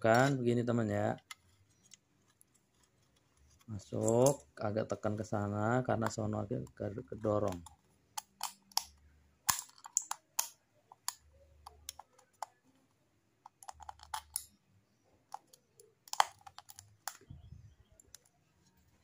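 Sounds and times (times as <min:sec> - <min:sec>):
drink can metal clicking: 0:07.2 - 0:12.6.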